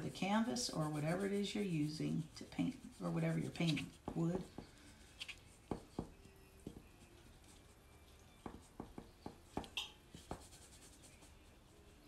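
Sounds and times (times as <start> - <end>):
pastel scratching on paper: 0.0 - 7.9, 10.1 - 11.9.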